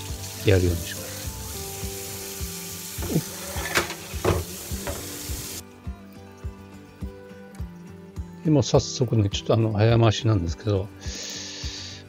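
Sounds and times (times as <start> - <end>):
tap water running into sink: 0.0 - 5.6.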